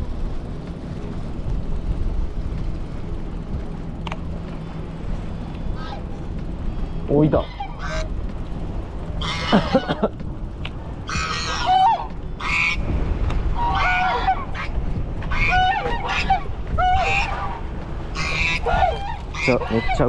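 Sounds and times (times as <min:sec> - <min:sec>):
low rumble: 0:00.0 - 0:20.0
gulls calling: 0:04.2 - 0:20.0.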